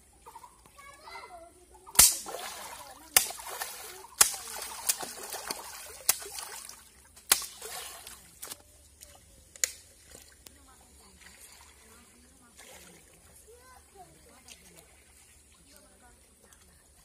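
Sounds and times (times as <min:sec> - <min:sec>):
stick slapping water: 0:01.9 - 0:13.3
water splashing and sloshing: 0:01.9 - 0:17.0.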